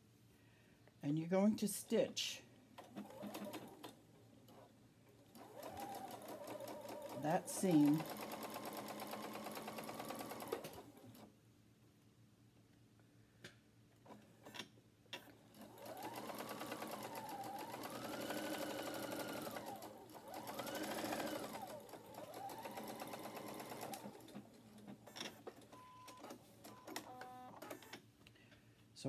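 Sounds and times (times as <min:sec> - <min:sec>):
sewing machine stitching: 0:02.8 - 0:11.3, 0:14.1 - 0:28.0.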